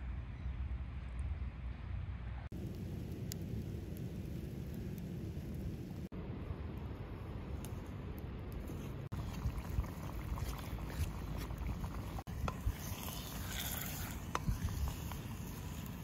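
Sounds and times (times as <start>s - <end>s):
wind rumbling on microphone: 1.3s - 16.0s.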